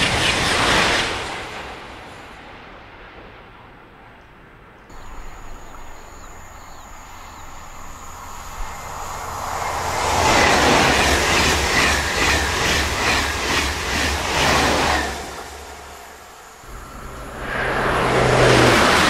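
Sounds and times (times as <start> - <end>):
high-speed train passing: 0.0 - 19.0
faint high whine: 4.9 - 10.6, 14.9 - 19.0.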